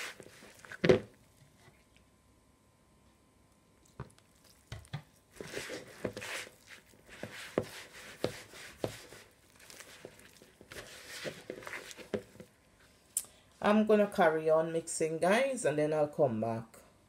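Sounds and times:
dough squelching: 0.0s - 1.3s, 3.8s - 12.5s
dough thumping in bowl: 4.0s - 12.5s.

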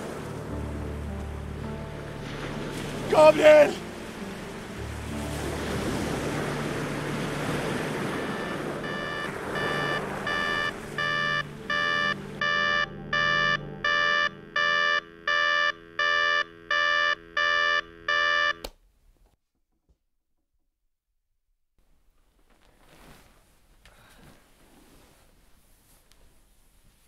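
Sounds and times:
alarm clock beeping: 8.2s - 18.6s.

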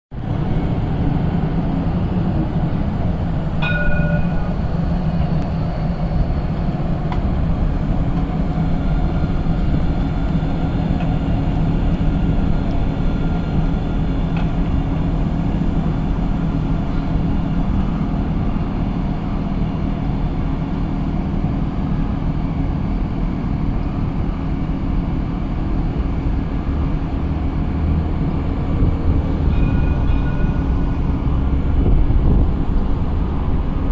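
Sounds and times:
road traffic: 0.1s - 33.9s
tram rumbling: 0.1s - 33.9s
high ringing tone: 3.6s - 5.0s, 29.3s - 31.6s.

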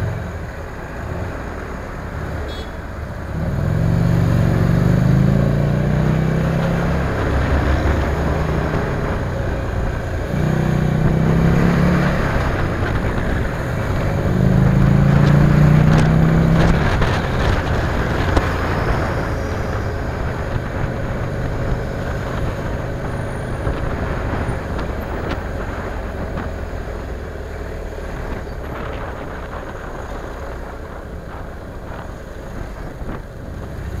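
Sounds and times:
wind and road noise: 0.0s - 34.0s.

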